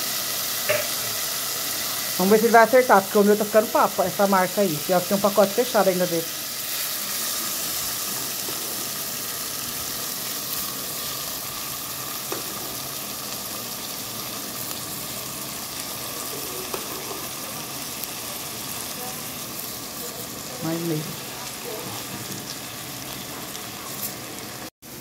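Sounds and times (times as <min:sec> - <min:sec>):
food sizzling in hot oil: 0:00.0 - 0:25.0.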